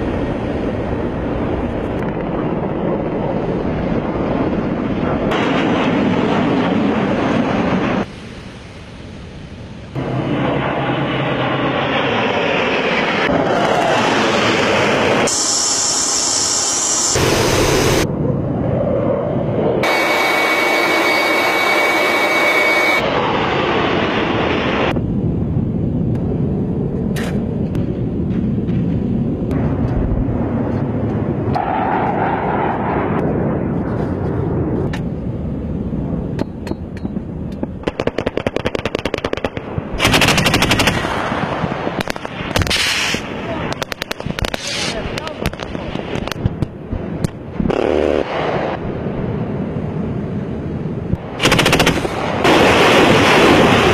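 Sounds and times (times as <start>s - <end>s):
jet aircraft noise: 0.0s - 53.9s
automatic gunfire bursts: 37.8s - 41.1s, 51.4s - 52.2s
scattered gunshots: 37.8s - 41.4s, 47.6s - 48.8s, 51.3s - 53.9s.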